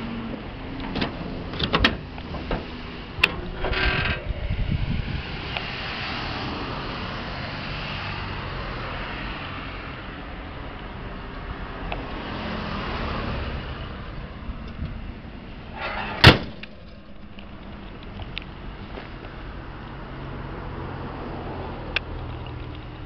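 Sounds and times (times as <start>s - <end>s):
steady low rumble: 0.0s - 6.0s
car hood slamming shut: 15.8s - 16.8s.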